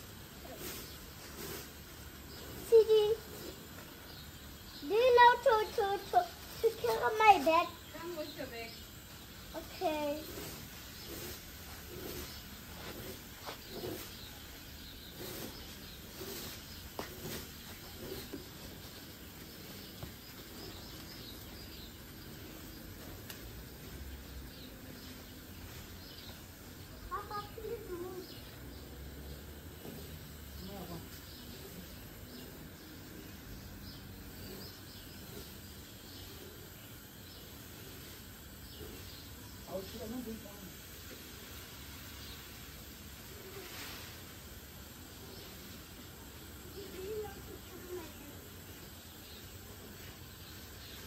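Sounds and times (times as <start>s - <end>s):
rake clicking and scraping lawn: 0.0s - 8.8s, 9.4s - 28.4s
birds chirping: 0.0s - 43.6s, 44.2s - 51.0s.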